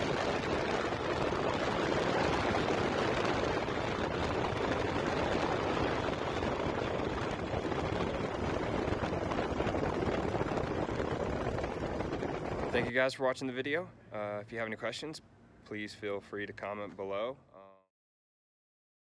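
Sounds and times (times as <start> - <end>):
wind rush: 0.0 - 13.8
road noise: 0.0 - 17.8.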